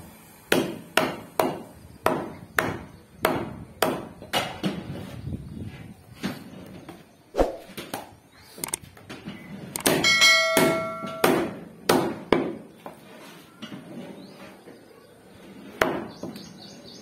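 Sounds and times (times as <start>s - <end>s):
metallic ringing: 10.0s - 11.4s.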